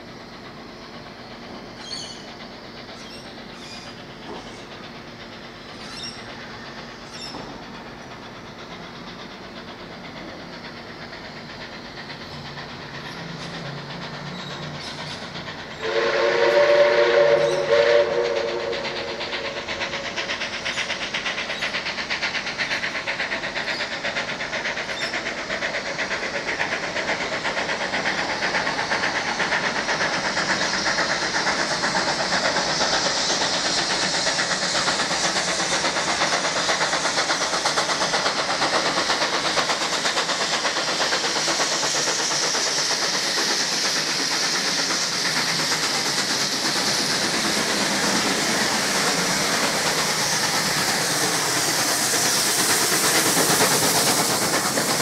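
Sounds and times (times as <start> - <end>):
steam locomotive exhaust beats: 0.0 - 55.0
steam locomotive whistle: 15.8 - 19.6.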